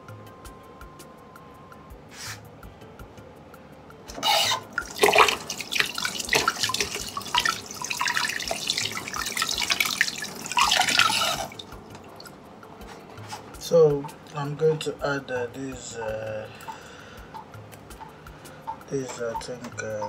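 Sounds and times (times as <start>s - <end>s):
tap water running into steel sink: 4.1s - 12.4s
water splashing over hand: 4.3s - 12.3s.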